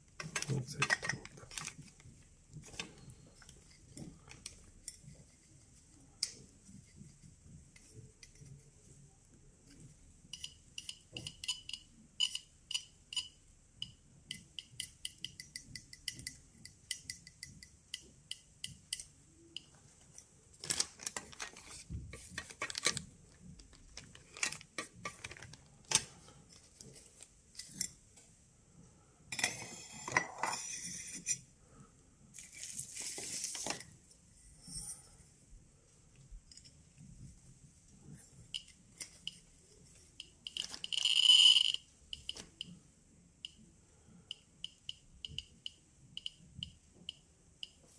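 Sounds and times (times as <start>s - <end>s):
geiger counter clicking: 10.3s - 19.8s, 40.2s - 42.8s, 44.3s - 47.9s
plastic bag rustling: 20.6s - 25.9s.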